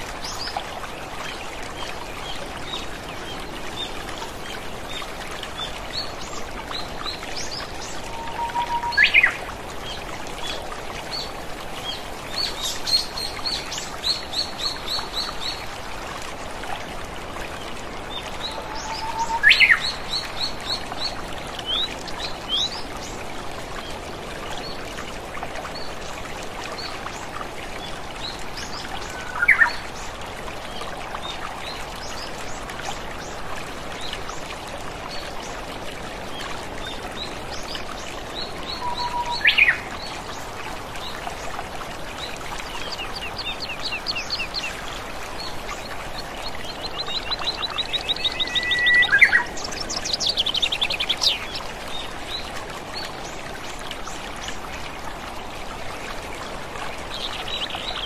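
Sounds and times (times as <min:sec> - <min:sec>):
songbirds calling: 0:02.2 - 0:15.6, 0:18.0 - 0:23.2, 0:27.8 - 0:30.1, 0:36.3 - 0:53.4.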